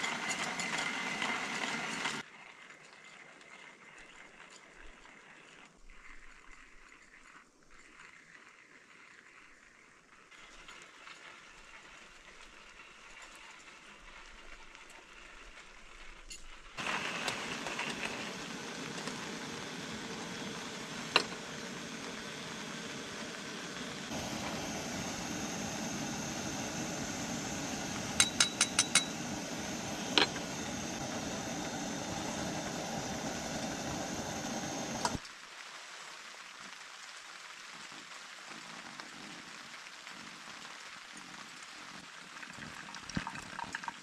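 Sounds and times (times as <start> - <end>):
camp stove roaring: 0.0 - 2.3, 16.8 - 35.2
hot water pouring: 16.8 - 35.3, 41.2 - 44.0
sharp metal clinks: 28.2 - 29.2.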